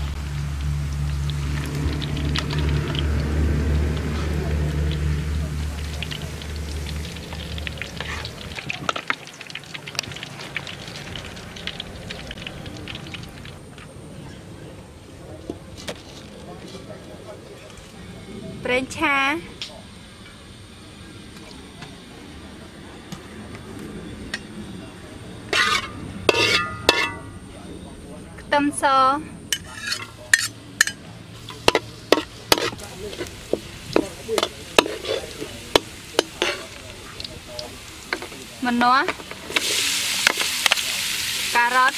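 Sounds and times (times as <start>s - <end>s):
hot oil crackling in a wok: 0.0s - 14.1s, 23.5s - 27.6s, 29.5s - 41.9s
metal ladle scraping wok: 7.8s - 9.1s, 25.5s - 27.3s, 29.5s - 36.9s.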